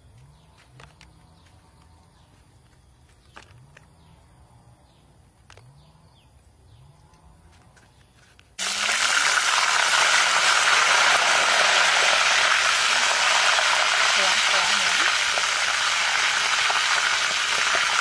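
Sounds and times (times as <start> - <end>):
grubs sizzling in hot oil: 8.6 - 18.0.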